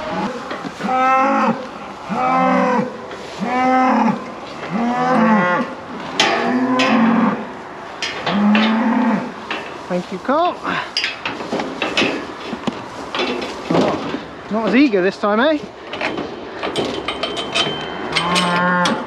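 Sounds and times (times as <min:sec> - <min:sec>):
calves bawling: 0:00.0 - 0:09.8, 0:17.4 - 0:19.0
metal hurdles clanking: 0:04.6 - 0:19.0.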